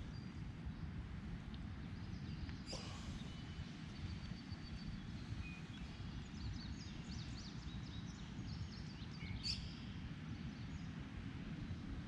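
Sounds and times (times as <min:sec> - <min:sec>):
small birds chirping: 0:01.8 - 0:11.0.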